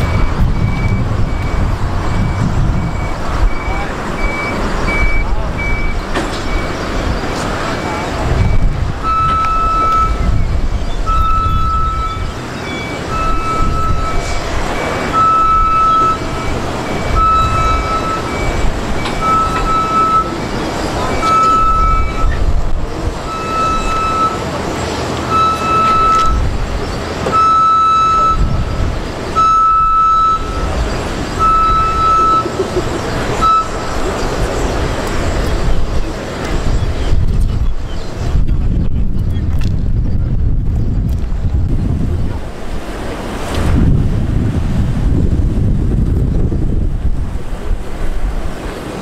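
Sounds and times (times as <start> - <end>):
higher-pitched fast beeper: 0.0 - 6.8, 7.8 - 10.5, 11.1 - 22.4, 23.3 - 24.4, 25.3 - 26.5, 29.4 - 30.8, 31.4 - 32.6, 33.4 - 34.2
back-up alarm beeping: 0.0 - 22.5, 23.2 - 24.6, 25.2 - 26.6, 27.2 - 34.8
engine rumble: 0.0 - 49.0.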